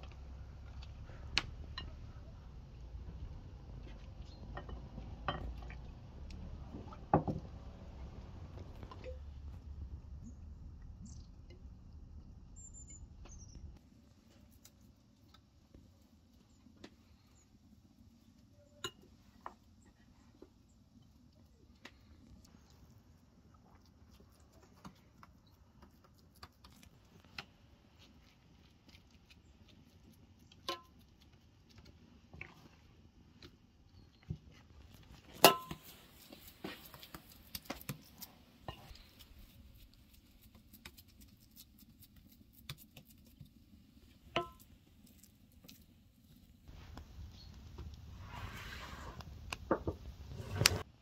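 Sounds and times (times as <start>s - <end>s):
spoon tapping pan: 44.3s - 44.6s.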